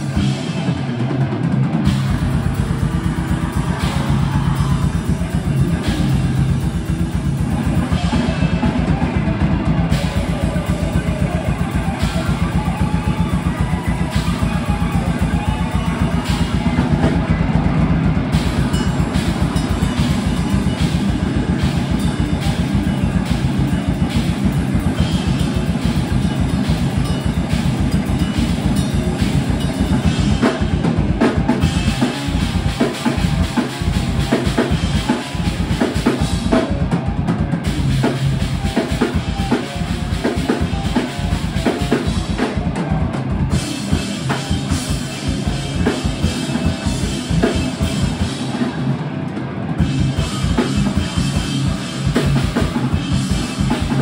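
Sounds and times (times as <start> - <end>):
electric guitar: 0.0 - 54.0
live band playing: 0.0 - 54.0.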